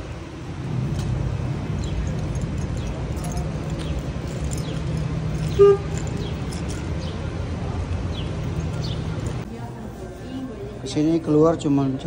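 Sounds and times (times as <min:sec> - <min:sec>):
street traffic rumble: 0:00.0 - 0:12.0
car horn toot: 0:05.5 - 0:06.1
small birds chirping: 0:08.0 - 0:09.4.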